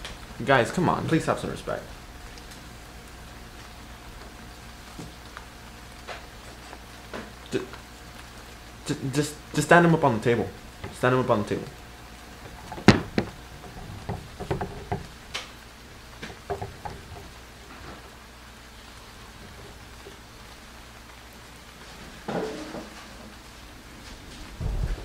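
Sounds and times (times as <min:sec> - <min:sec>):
steady rain: 0:00.0 - 0:25.0
plastic doll knocking on wood: 0:12.5 - 0:15.1, 0:16.3 - 0:17.2.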